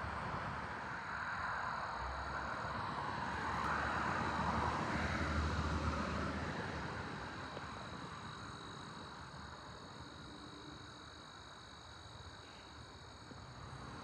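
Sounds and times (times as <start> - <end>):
distant engine passing by: 0.0 - 10.4.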